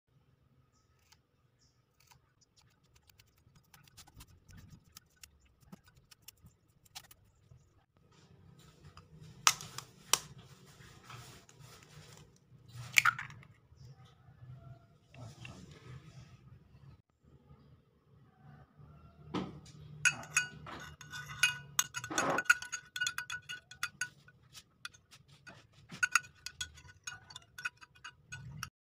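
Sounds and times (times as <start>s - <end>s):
scissors snipping: 2.0s - 7.2s.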